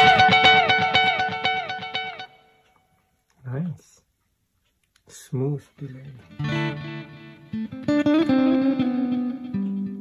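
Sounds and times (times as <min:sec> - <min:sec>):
electric guitar with echo repeats: 0:00.0 - 0:02.8, 0:06.2 - 0:10.0.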